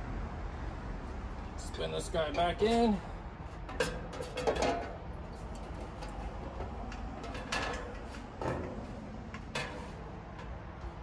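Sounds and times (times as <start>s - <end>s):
metal fan grille clinking: 2.0s - 11.0s
metal scrapes: 7.2s - 10.6s.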